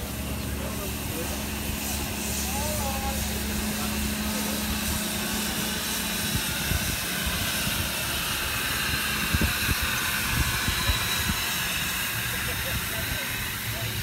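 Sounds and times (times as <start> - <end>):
steam locomotive hissing steam: 0.0 - 14.0.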